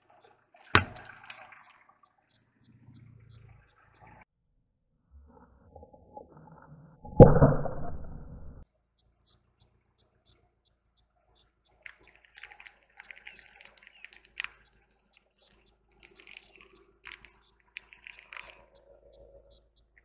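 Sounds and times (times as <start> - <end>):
tyre crunching plastic balls: 11.9 - 18.6.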